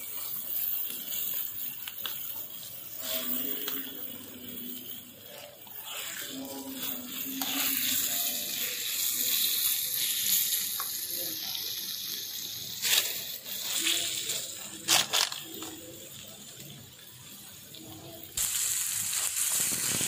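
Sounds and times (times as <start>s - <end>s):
curry sizzling in a pan: 0.0s - 20.0s
spatula scraping and tapping pan: 6.8s - 8.0s.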